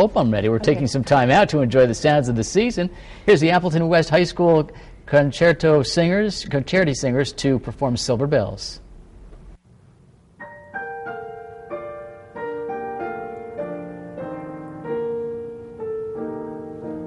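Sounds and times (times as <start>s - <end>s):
piano playing: 10.4s - 17.0s.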